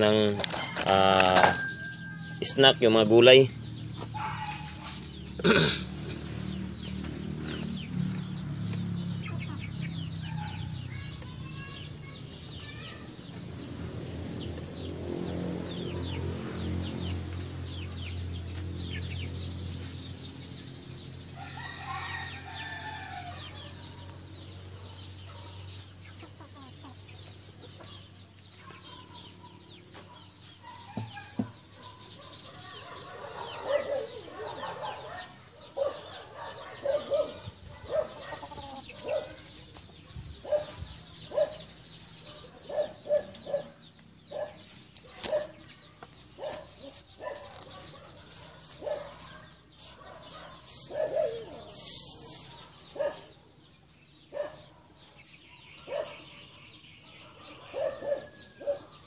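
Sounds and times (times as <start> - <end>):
chickens clucking: 3.8 - 12.6, 25.0 - 56.6.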